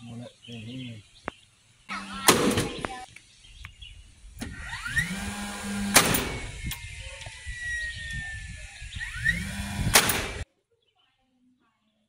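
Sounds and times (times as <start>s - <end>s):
nail gun firing into wood: 2.3s - 2.9s, 4.4s - 6.5s, 9.1s - 10.4s
nailer motor whining: 4.3s - 10.4s.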